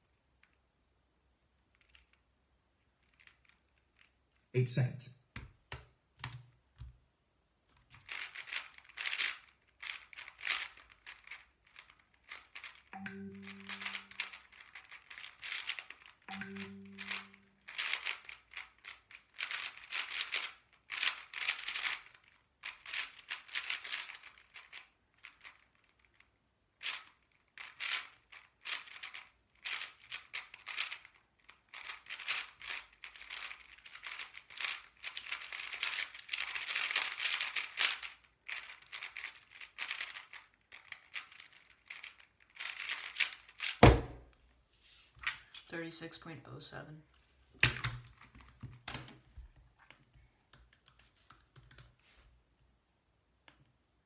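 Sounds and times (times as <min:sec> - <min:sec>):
puzzle cube clicking turns: 0:01.5 - 0:04.5, 0:05.4 - 0:07.0, 0:07.8 - 0:44.2
cube set down with a thud: 0:43.7 - 0:44.3.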